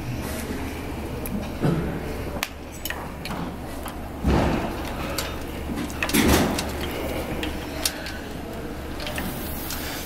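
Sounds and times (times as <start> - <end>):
cables rubbing against bike frame: 4.8 - 10.0.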